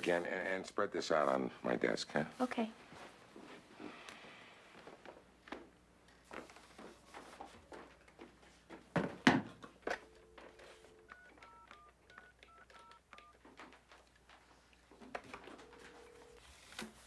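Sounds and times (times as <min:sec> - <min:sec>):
telephone dial tone: 0:10.0 - 0:13.4, 0:15.1 - 0:16.7
touch-tone keypress beeps: 0:11.1 - 0:13.3.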